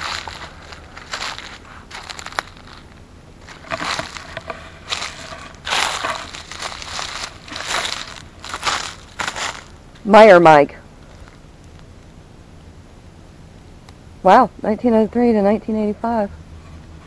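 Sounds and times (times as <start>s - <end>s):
footsteps crunching on dry litter: 0.0s - 10.3s, 11.0s - 11.9s.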